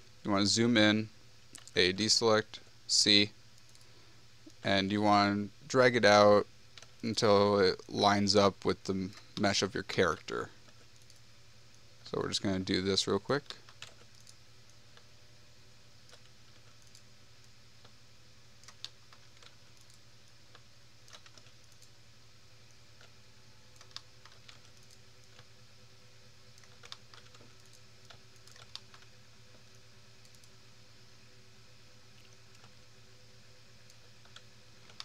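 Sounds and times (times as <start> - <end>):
low background hum: 0.0 - 35.0
keyboard and mouse clicks: 1.5 - 1.8, 13.4 - 15.1, 16.0 - 17.0, 18.6 - 21.9, 23.0 - 25.5, 26.6 - 29.1, 30.2 - 30.6, 32.2 - 32.8, 33.8 - 35.0.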